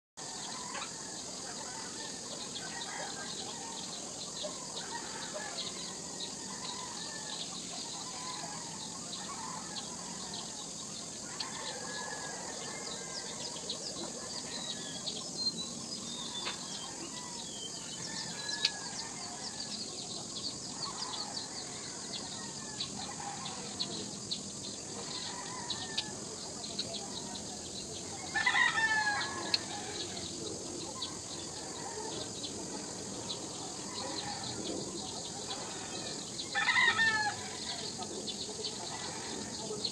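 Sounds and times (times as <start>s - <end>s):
steady high hiss: 0.2s - 39.9s
chickens clucking: 0.3s - 17.4s.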